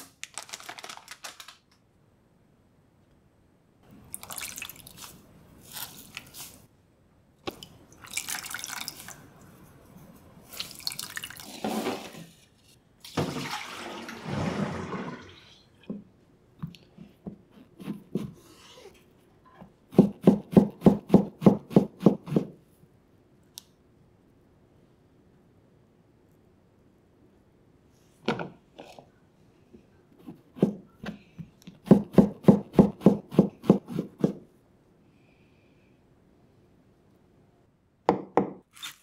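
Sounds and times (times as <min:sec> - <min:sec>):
water splashing and dripping: 0:07.5 - 0:09.2.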